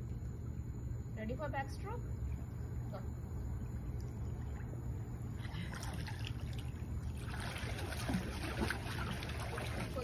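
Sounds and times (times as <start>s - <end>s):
steady low rumble: 0.0s - 10.0s
pool water splashing: 4.0s - 10.0s.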